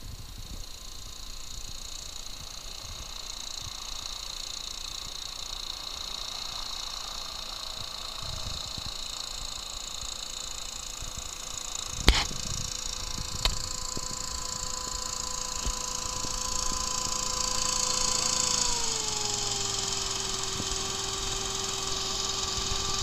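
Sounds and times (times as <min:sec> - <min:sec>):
hovercraft engine and propeller: 0:00.0 - 0:23.0
sharp click: 0:11.9 - 0:14.1.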